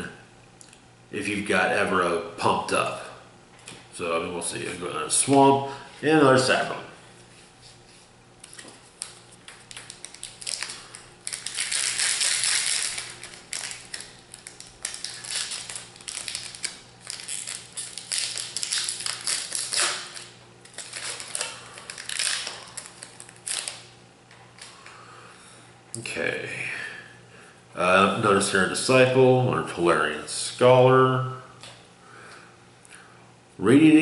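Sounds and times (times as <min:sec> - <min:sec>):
foil wrapper crinkling and tearing: 0:08.5 - 0:23.9.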